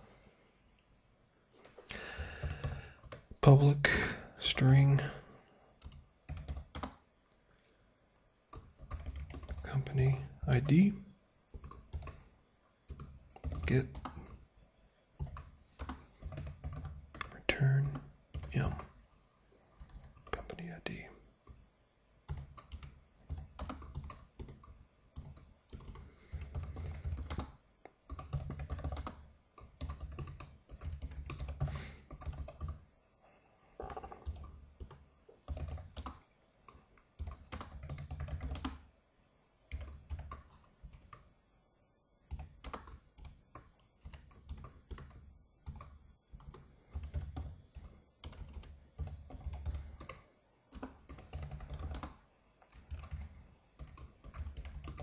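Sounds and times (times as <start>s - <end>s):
keyboard typing clicks: 1.6s - 3.3s, 5.8s - 7.0s, 8.5s - 10.8s, 22.3s - 32.8s, 33.8s - 38.8s, 42.3s - 55.0s.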